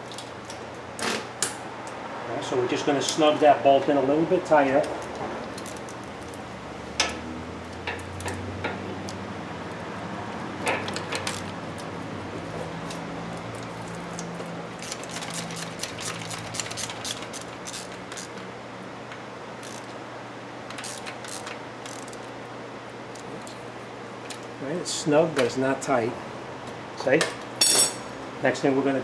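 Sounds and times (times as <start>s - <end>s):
ratchet wrench clicking: 14.8s - 18.4s, 19.6s - 19.9s, 20.7s - 22.2s.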